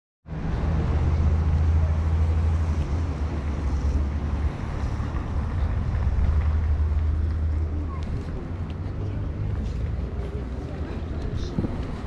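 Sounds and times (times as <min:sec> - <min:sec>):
wind buffeting microphone: 0:11.1 - 0:12.0.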